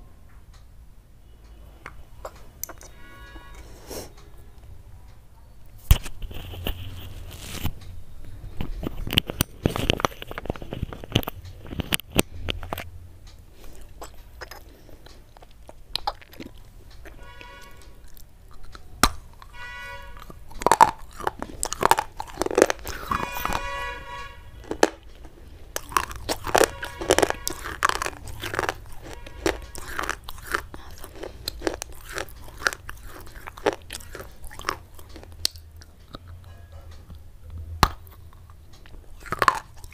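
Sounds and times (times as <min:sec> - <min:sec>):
chalk sticks crunching in bites: 0:13.6 - 0:19.5, 0:20.2 - 0:23.8, 0:24.6 - 0:36.2, 0:37.8 - 0:39.9.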